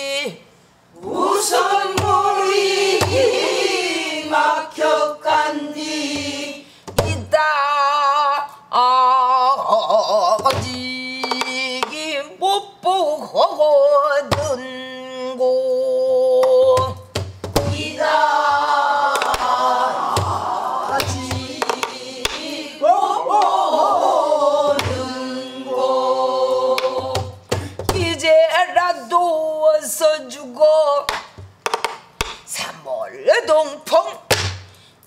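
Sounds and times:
woman singing with wavering vibrato: 7.1 - 17.0.

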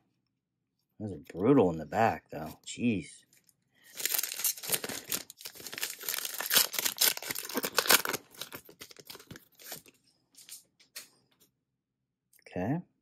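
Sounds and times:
foil wrapper tearing and crinkling: 3.9 - 10.5.

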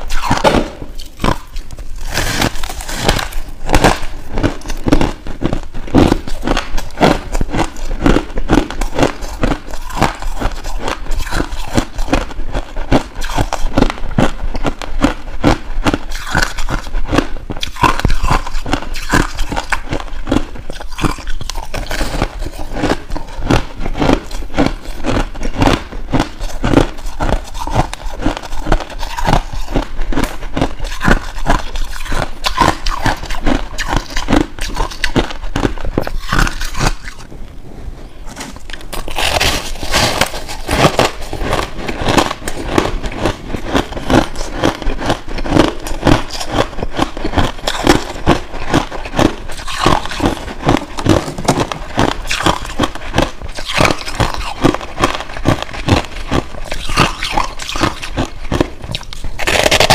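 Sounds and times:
crushed ice being chewed: 0.0 - 37.3, 38.3 - 59.9.

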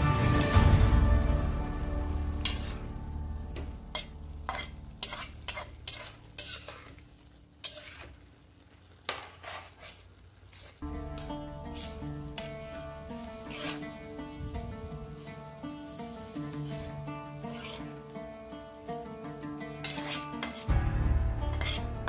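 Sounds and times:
background music: 0.0 - 5.5, 10.8 - 22.0
spatula scraping frying pan: 2.3 - 3.0, 3.6 - 8.2, 8.8 - 18.4, 19.3 - 22.0.

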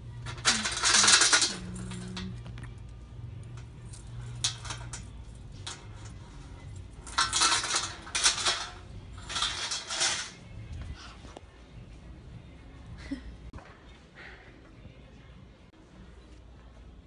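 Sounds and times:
steel chain clinking and rattling: 0.0 - 2.5, 3.3 - 10.8.

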